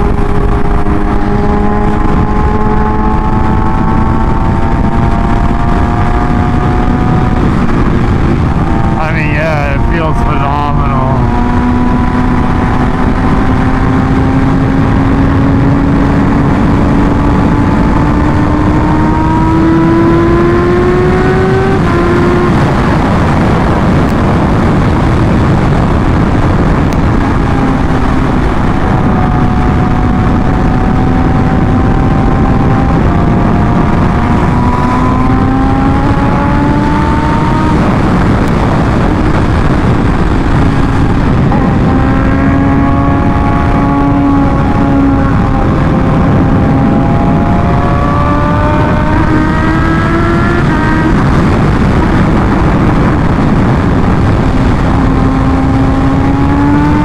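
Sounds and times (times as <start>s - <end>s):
motorcycle engine pitch climbing: 0.0s - 57.0s
rush of wind and road noise: 0.0s - 57.0s.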